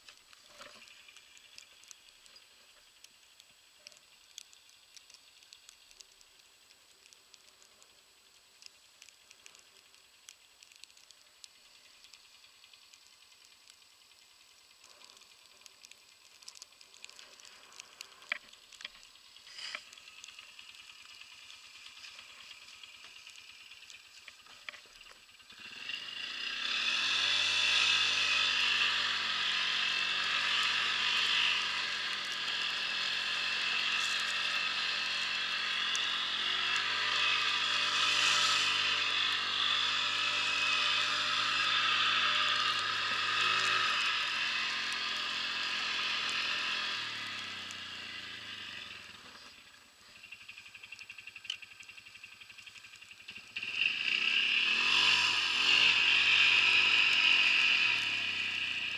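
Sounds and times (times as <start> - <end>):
light clicks: 0.0 - 25.6
quad engine running under load: 11.7 - 58.9.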